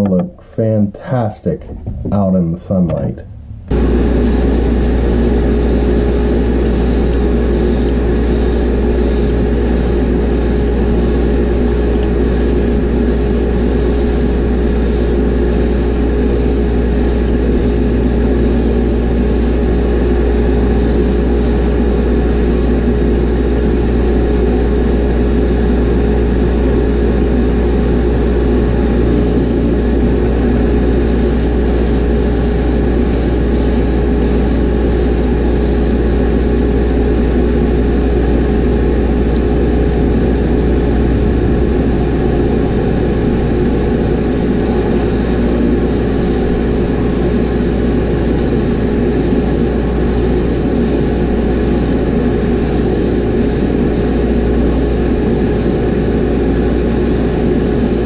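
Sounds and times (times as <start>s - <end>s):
exhaust fan droning: 2.9s - 58.0s
airbrush spraying hiss: 4.2s - 19.7s, 20.7s - 25.1s, 29.1s - 29.6s, 31.0s - 35.9s, 43.8s - 55.8s, 56.6s - 58.0s.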